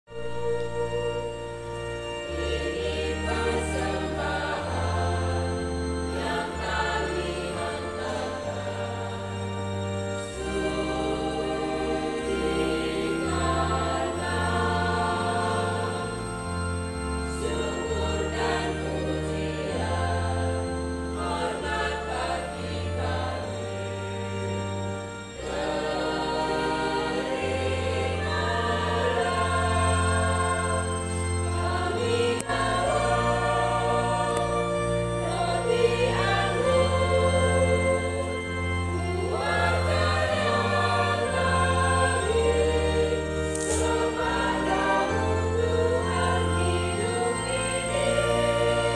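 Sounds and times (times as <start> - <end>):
church choir singing a hymn: 0.1 - 48.9
keyboard bass notes: 0.1 - 48.9.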